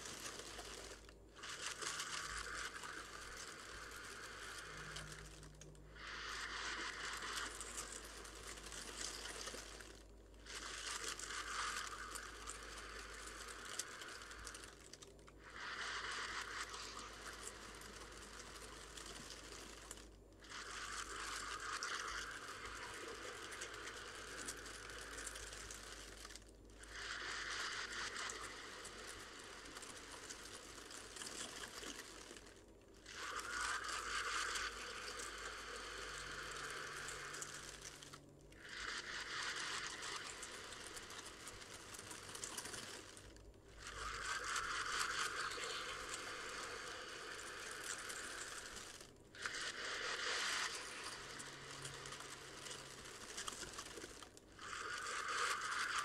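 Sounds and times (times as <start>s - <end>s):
person breathing into plastic bag: 0.0s - 56.0s
plastic bag crinkling: 39.7s - 56.0s.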